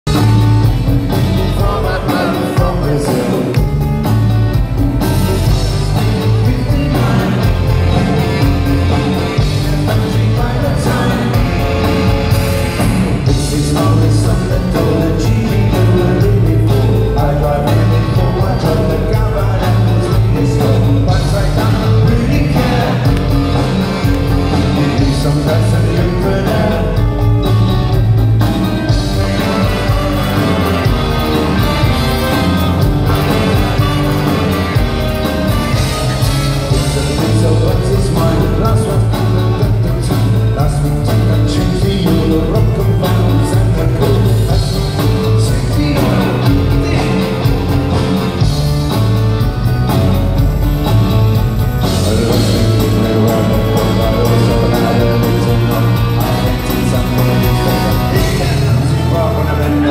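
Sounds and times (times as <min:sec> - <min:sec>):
live band playing: 0:00.0 - 0:59.9
man singing into microphone: 0:01.1 - 0:03.7, 0:05.0 - 0:27.5, 0:36.2 - 0:48.5, 0:51.8 - 0:59.9.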